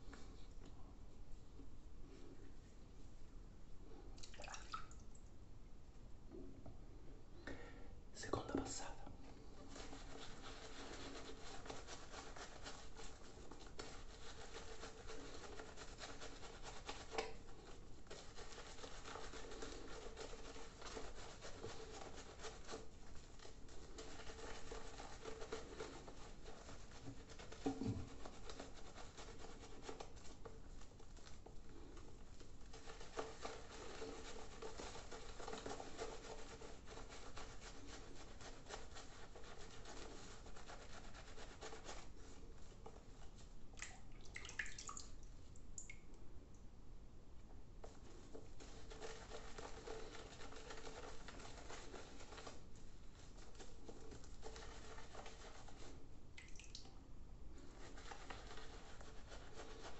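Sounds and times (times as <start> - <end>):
shaving brush swishing on skin: 9.4 - 43.6, 47.8 - 56.1, 57.6 - 59.9.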